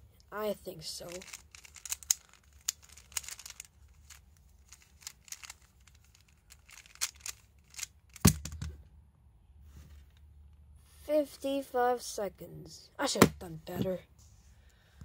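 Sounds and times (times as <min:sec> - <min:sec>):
hands clicking plastic cube: 0:01.2 - 0:04.2, 0:04.8 - 0:08.7.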